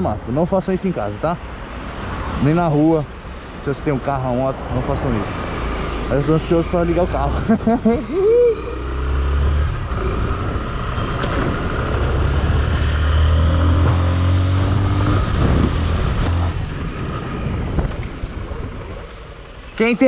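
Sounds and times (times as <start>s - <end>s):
wind rushing over microphone: 9.0s - 19.5s.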